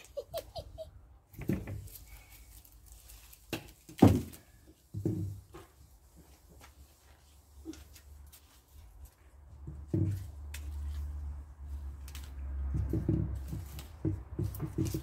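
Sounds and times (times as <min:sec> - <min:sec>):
thumps of branch: 0:03.2 - 0:05.8, 0:12.0 - 0:15.0.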